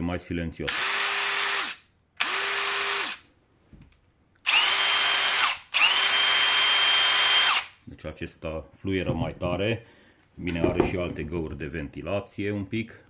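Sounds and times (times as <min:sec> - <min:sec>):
cordless drill motor humming: 0:00.7 - 0:03.2, 0:04.4 - 0:07.7.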